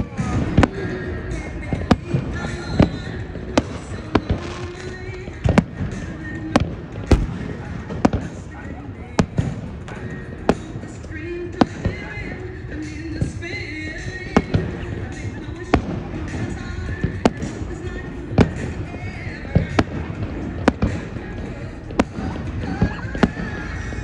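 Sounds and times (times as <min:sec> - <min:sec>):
music: 0:00.0 - 0:24.0
fireworks bangs: 0:07.1 - 0:08.4.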